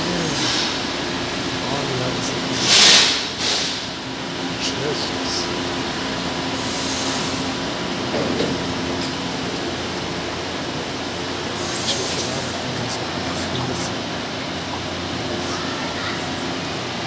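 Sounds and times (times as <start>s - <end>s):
metro train running hum: 0.0s - 17.0s
air hiss bursts: 0.2s - 0.9s, 2.6s - 4.0s, 6.5s - 7.6s, 11.5s - 12.6s.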